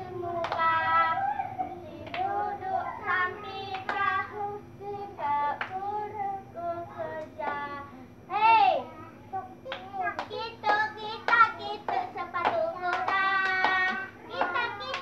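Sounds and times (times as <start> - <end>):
girls singing together: 0.0 - 7.9, 9.6 - 15.0
hands clapping: 0.4 - 0.7, 2.0 - 2.3, 5.6 - 5.8, 9.7 - 15.0.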